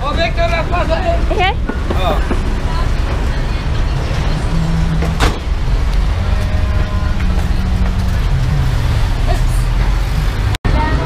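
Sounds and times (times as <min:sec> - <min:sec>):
diesel engine rumbling: 0:00.0 - 0:11.0.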